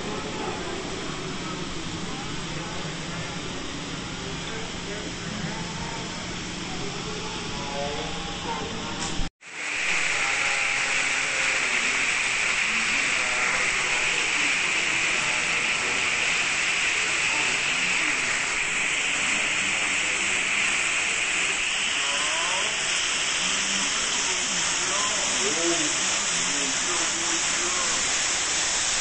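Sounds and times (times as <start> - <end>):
waterfall rushing: 9.5 - 29.0.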